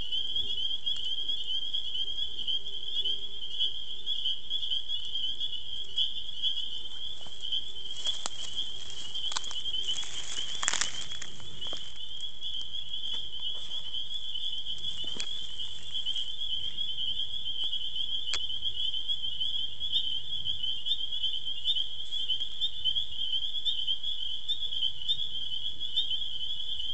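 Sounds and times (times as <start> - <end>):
frogs calling in chorus: 0.0 - 26.9
rustles and clicks: 6.9 - 12.0.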